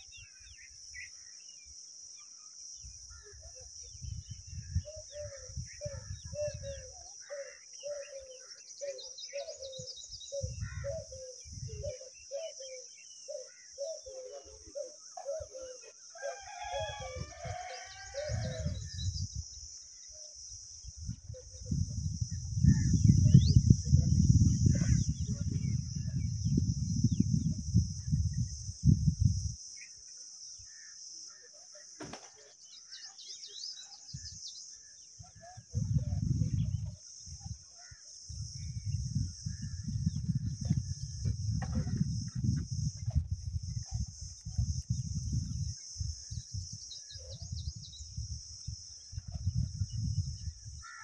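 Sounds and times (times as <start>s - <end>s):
high insect drone: 0.0s - 51.0s
rooster crowing: 16.1s - 18.8s
low rumbling on microphone: 21.1s - 29.6s, 35.6s - 37.0s, 38.3s - 45.7s, 49.2s - 50.8s.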